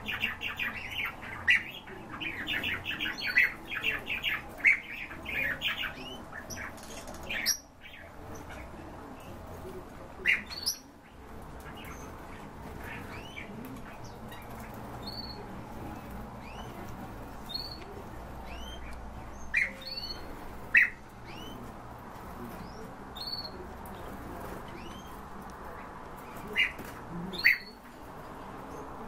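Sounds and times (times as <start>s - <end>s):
caged birds chirping: 0.0s - 29.0s
loud sharp bird calls: 18.4s - 21.7s, 26.4s - 27.8s.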